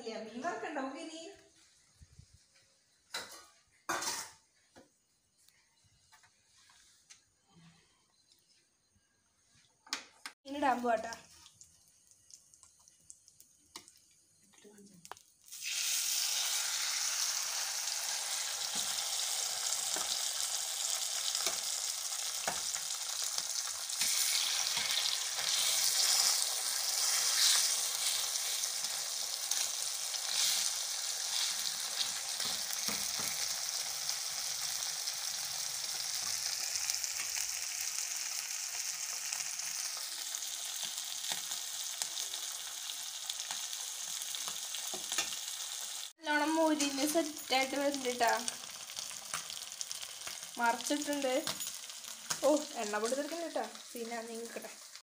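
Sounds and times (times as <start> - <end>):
fish sizzling in hot oil: 10.5 - 55.0
oil popping and spattering: 11.2 - 17.2.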